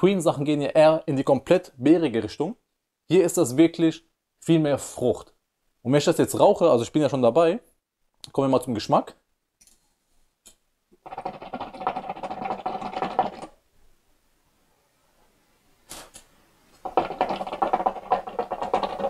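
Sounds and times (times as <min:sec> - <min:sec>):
water bubbling in hookah: 0:11.0 - 0:13.6, 0:16.8 - 0:19.0.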